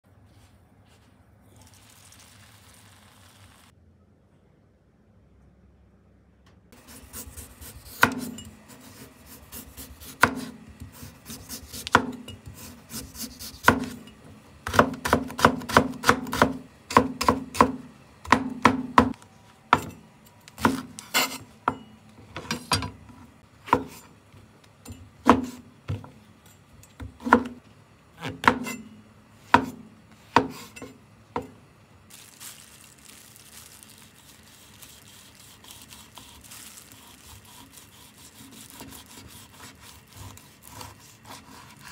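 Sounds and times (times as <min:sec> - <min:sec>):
knife chopping on wooden board: 0:06.8 - 0:08.5, 0:09.3 - 0:14.0, 0:14.6 - 0:19.9, 0:20.6 - 0:22.9, 0:23.6 - 0:24.1, 0:25.2 - 0:26.1, 0:27.0 - 0:27.6, 0:28.2 - 0:28.8, 0:29.5 - 0:31.5.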